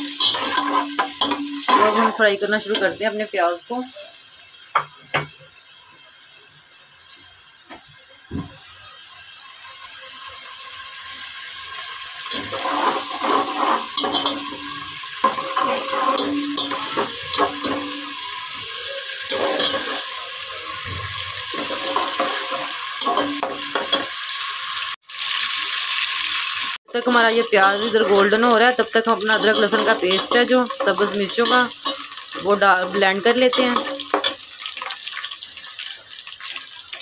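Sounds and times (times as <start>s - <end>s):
metal spoon scraping a pot: 0.0s - 2.8s, 12.3s - 24.1s, 27.0s - 34.9s
onions sizzling in a pot: 0.0s - 37.0s.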